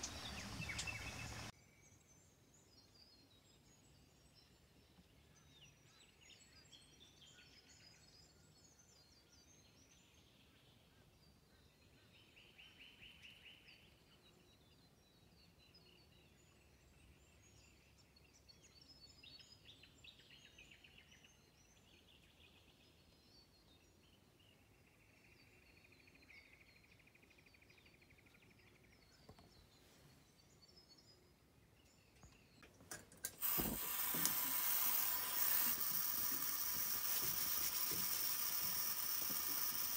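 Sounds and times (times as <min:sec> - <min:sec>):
faint birds chirping: 0:00.0 - 0:39.9
clicks: 0:32.6 - 0:39.9
gas camping stove hissing: 0:33.3 - 0:39.9.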